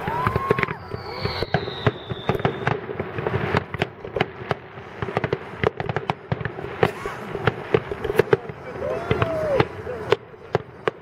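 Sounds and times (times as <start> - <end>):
high whistle sliding down: 0.0 - 2.7
firework bangs and pops: 0.0 - 11.0.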